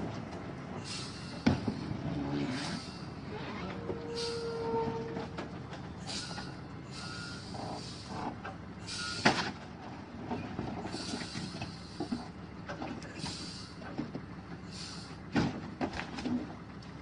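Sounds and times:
truck engine rumble: 0.0 - 17.0
squeaks: 2.6 - 5.4.

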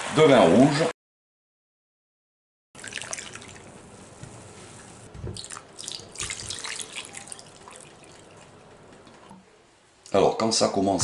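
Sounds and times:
liquid pouring into hot pot: 2.8 - 3.8, 5.4 - 9.3
splashing and crackling: 2.8 - 9.3.

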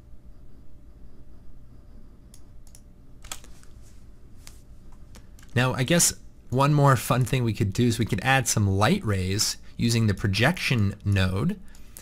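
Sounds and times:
low room hum: 0.0 - 12.0
computer keyboard clicks: 2.3 - 3.6.

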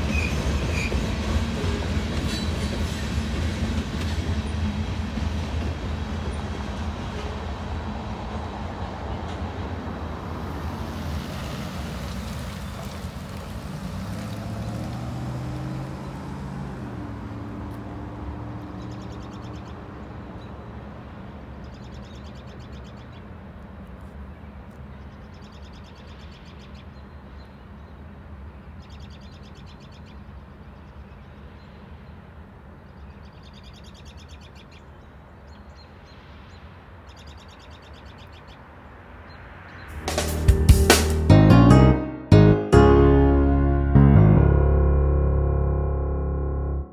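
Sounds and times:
freight train rumbling past: 0.0 - 18.9, 39.9 - 46.8.

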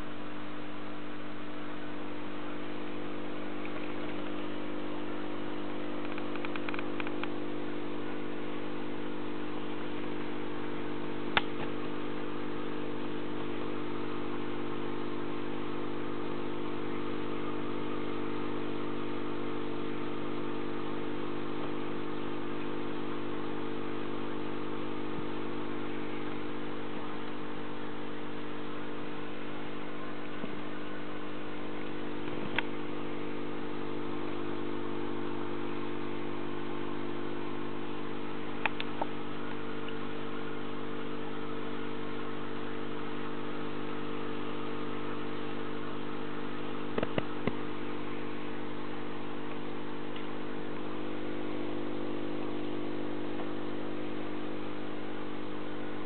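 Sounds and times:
aquarium air pump humming: 0.0 - 56.0.

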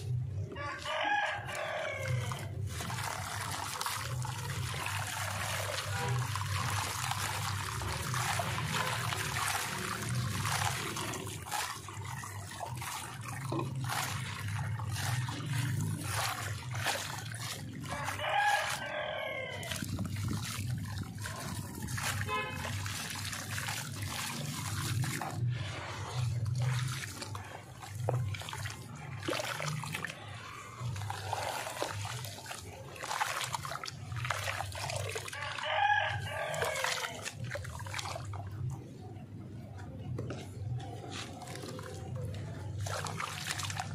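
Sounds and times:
grit pattering into water: 0.0 - 43.9
hands squishing wet paste: 0.0 - 43.9
rooster crowing: 0.6 - 2.5, 17.9 - 19.7, 35.4 - 37.2.

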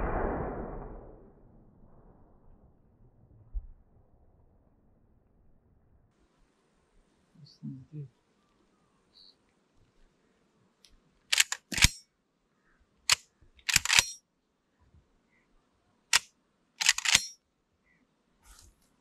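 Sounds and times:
shotgun bolt metallic clacks: 11.3 - 12.0, 13.1 - 14.2, 16.1 - 17.4.

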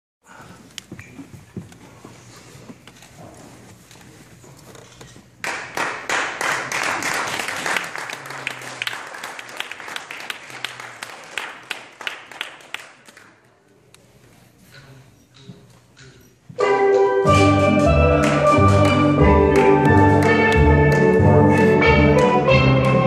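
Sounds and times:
audience applauding: 5.4 - 13.4.

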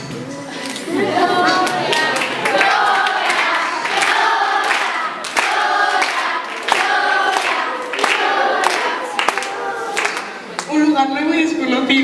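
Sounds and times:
group of voices singing: 0.4 - 10.6
steady beat: 1.0 - 9.6.

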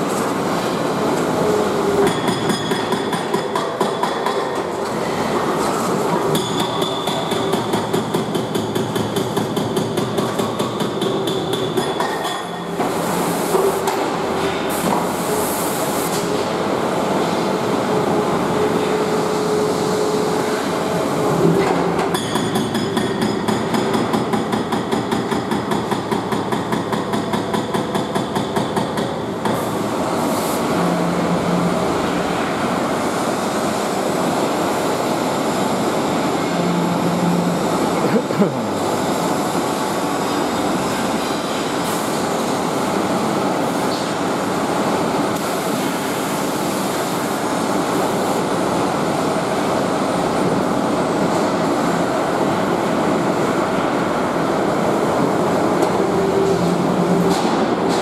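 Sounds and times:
hydraulic breaker hammering brick: 2.0 - 4.7, 6.2 - 12.6, 21.7 - 29.6.

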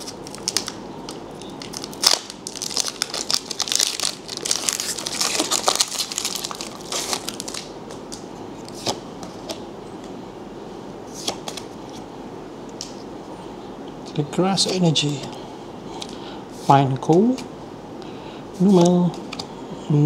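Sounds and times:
foil wrapper crinkling and tearing: 0.0 - 7.7.

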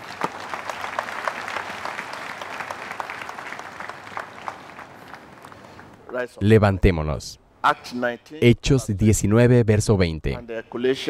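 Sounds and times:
crowd applauding: 0.0 - 6.0.

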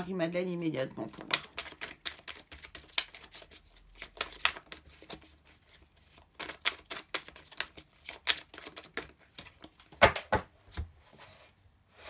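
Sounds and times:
cards being shuffled: 1.1 - 10.0.

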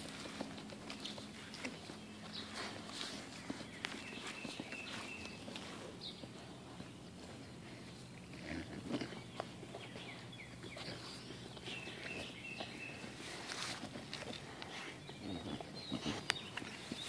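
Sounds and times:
puppies rustling in grass: 0.0 - 17.0.

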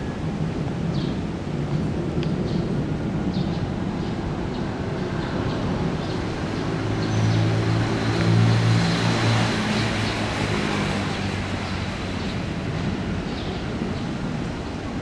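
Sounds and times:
traffic rumble: 0.0 - 15.0
vehicle engine hum: 1.4 - 15.0.

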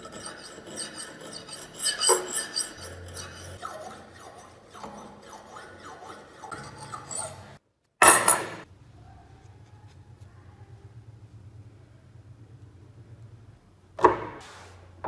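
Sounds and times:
scissor blade on whetstone: 0.0 - 7.6
low hum: 8.2 - 14.0.

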